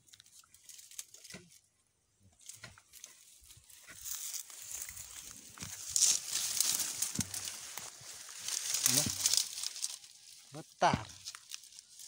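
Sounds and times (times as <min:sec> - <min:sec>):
grass and vines rustling: 0:00.0 - 0:12.0
stems snapping: 0:05.6 - 0:10.1, 0:10.9 - 0:12.0.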